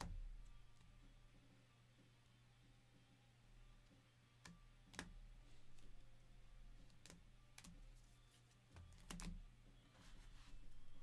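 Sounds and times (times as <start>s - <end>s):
low steady hum: 0.0s - 11.0s
cards clicking and tapping: 4.4s - 6.0s, 6.8s - 8.1s, 8.7s - 9.4s.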